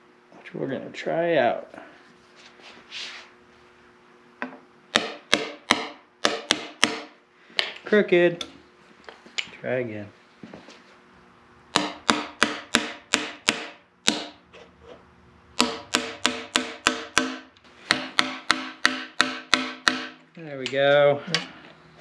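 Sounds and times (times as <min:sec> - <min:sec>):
hammer tapping on metal: 0:15.6 - 0:21.5.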